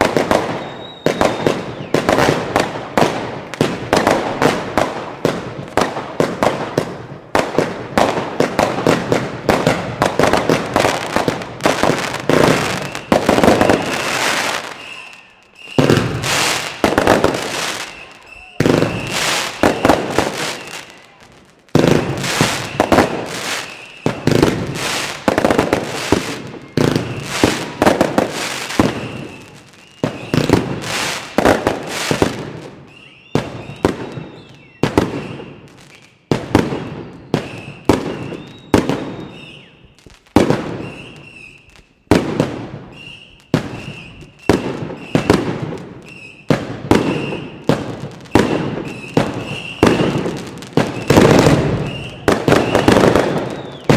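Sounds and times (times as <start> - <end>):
fireworks bangs: 0.0 - 53.9.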